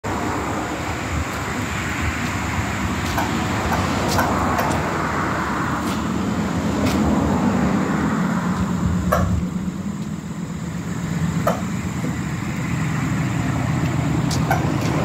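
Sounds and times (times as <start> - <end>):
pallet jack wheels rumbling: 8.6 - 15.0.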